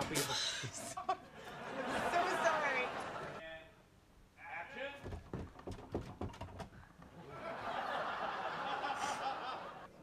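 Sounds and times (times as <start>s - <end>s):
people laughing: 0.7s - 3.4s, 7.2s - 10.0s.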